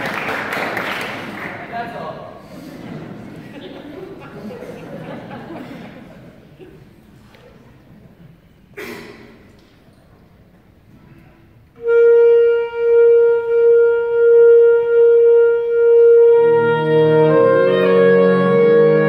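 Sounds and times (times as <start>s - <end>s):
lower saxophones chord: 11.8s - 19.0s
saxophone holding long note: 11.8s - 19.0s.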